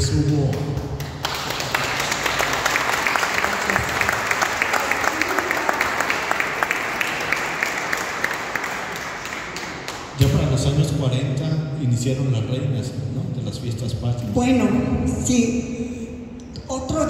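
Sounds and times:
audience applauding: 0.4 - 10.2.

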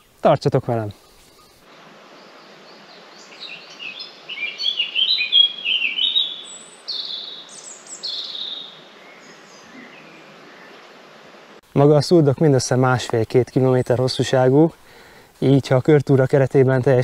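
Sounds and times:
faint background hiss: 0.0 - 17.0
songbird chirping and whistling: 2.7 - 10.2.

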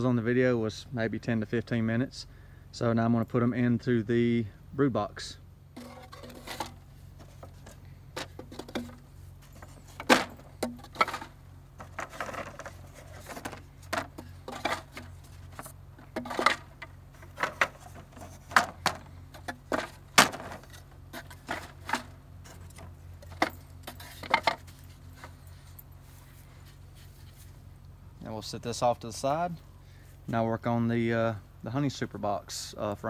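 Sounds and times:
steady low hum: 0.0 - 33.0
wooden frames knocking: 7.3 - 15.1.

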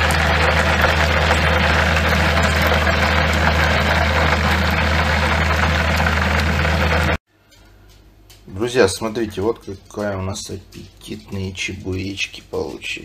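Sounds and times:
food deep-frying in hot oil: 0.0 - 7.2
low hum of deep fryer: 0.0 - 13.0.

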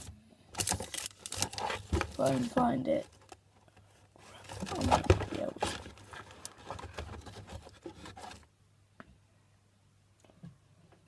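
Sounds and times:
rummaging rustling and scraping: 0.0 - 8.5.

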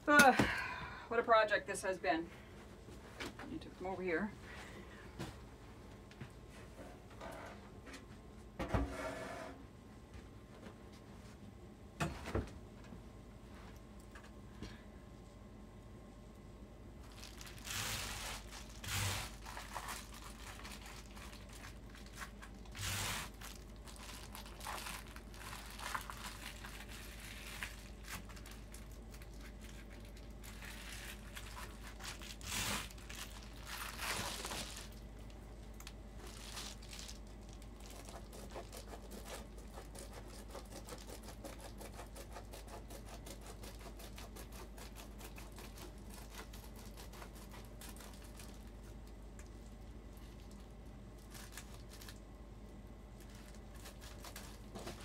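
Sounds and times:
foil insulation crinkling: 17.0 - 52.4, 53.1 - 55.0.

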